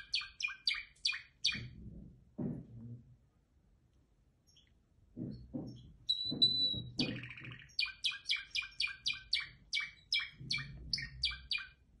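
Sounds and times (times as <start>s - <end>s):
canary singing: 0.0s - 1.8s, 5.6s - 12.0s.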